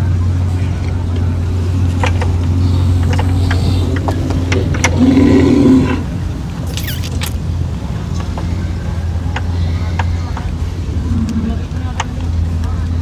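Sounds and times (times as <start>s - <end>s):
low engine hum: 0.0s - 13.0s
bull calling: 3.4s - 7.2s.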